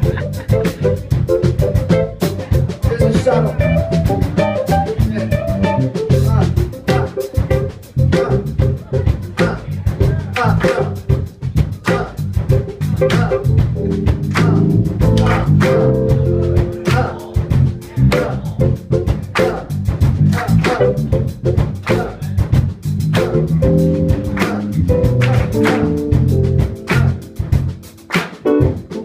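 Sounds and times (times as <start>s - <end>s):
electric guitar: 0.0s - 9.2s
keyboard: 0.0s - 9.6s, 11.9s - 19.7s, 23.1s - 29.0s
drum kit beat: 0.0s - 29.0s
electric bass: 0.0s - 29.0s.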